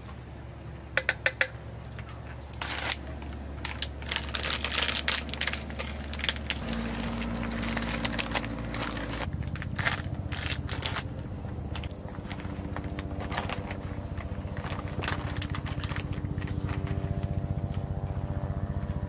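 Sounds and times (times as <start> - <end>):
low pulsing hum: 0.0 - 19.0
plastic packaging crinkling: 2.6 - 17.8.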